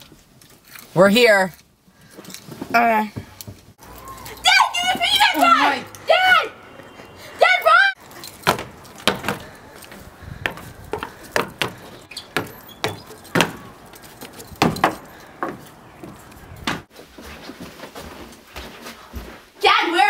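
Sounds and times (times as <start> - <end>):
footsteps on wooden stairs: 8.0 - 19.6.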